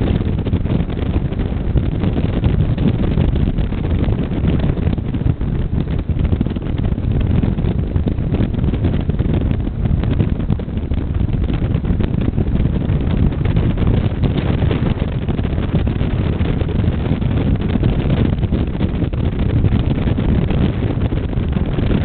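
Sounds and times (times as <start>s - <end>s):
motorcycle engine drone: 0.0s - 22.0s
wind buffeting microphone: 0.0s - 22.0s.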